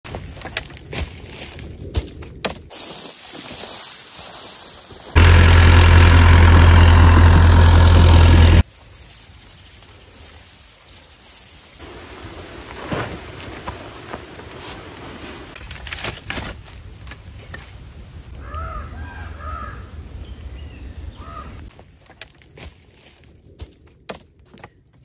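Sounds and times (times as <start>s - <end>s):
low outdoor rumble: 5.2s - 8.6s
crow cawing: 18.4s - 19.9s.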